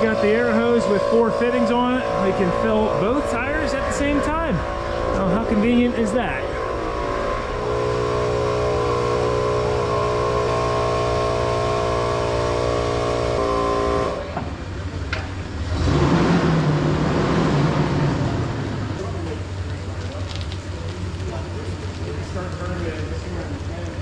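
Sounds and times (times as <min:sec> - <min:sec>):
air compressor running: 0:00.0 - 0:15.0.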